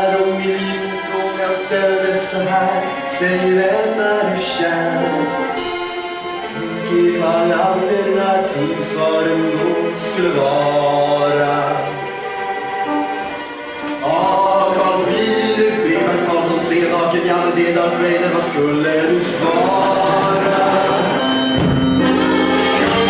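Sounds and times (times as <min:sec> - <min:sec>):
song with instrumental accompaniment: 0:00.0 - 0:23.0.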